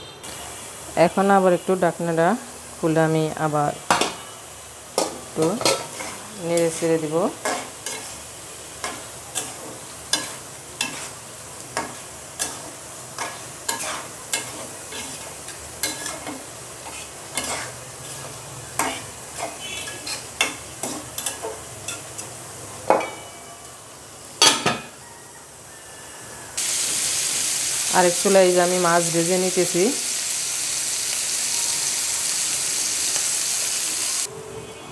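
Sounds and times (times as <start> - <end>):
low sizzle: 0.2 - 34.3
metal spatula scraping a pan: 5.0 - 8.2, 8.8 - 11.2, 11.8 - 22.2.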